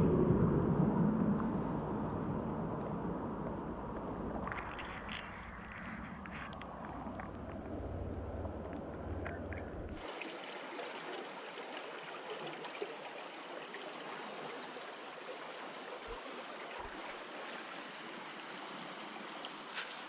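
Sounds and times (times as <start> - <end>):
rapids water rushing: 4.3 - 20.0.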